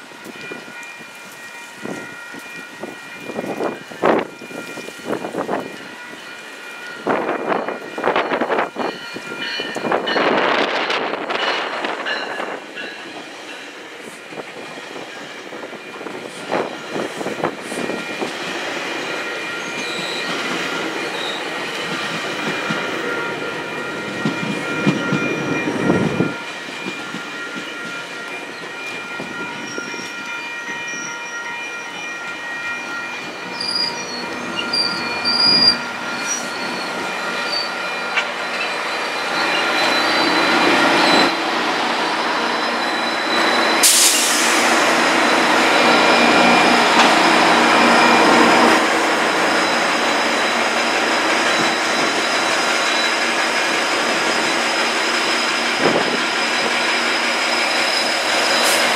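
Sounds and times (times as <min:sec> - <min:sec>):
diesel locomotives passing: 0:00.0 - 0:58.9
high-pitched wheel squeal: 0:33.6 - 0:37.7, 0:38.5 - 0:41.4.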